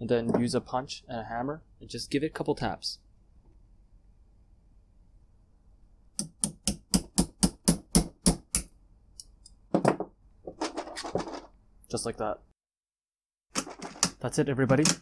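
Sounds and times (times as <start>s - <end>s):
hammer tapping steel punch: 6.2s - 8.7s.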